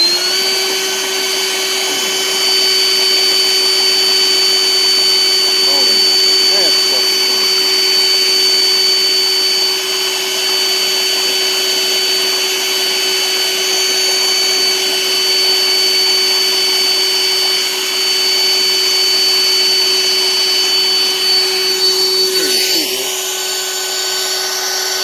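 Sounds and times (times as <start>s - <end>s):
pump motor humming: 0.0s - 25.0s.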